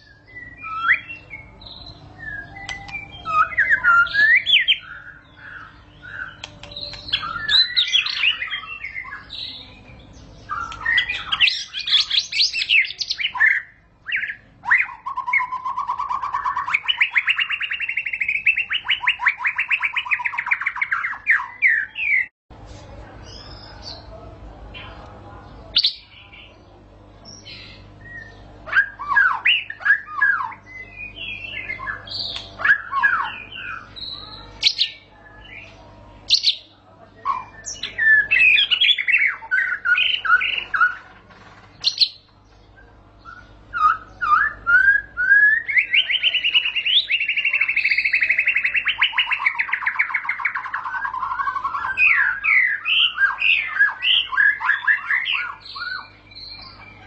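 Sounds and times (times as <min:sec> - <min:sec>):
bird whistles and chirps: 0:00.0 - 0:09.3, 0:42.8 - 0:57.0.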